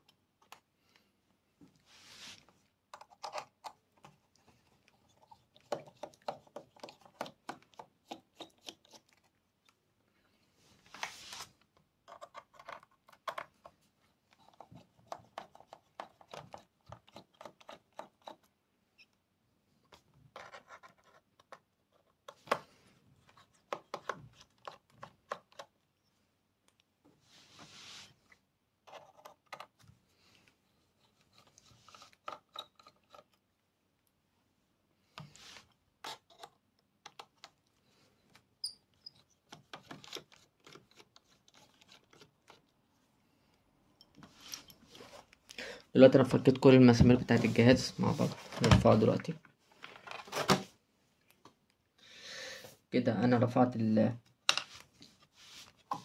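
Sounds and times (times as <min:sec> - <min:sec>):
brief rubbing sounds: 0:01.8 - 0:02.5, 0:10.9 - 0:11.6, 0:27.2 - 0:28.2.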